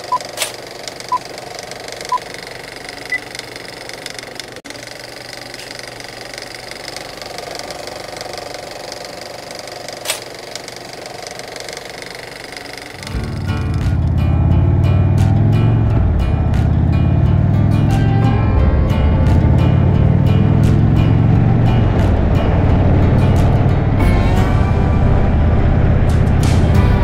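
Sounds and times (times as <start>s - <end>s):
film projector whirring clatter: 0.0s - 14.0s.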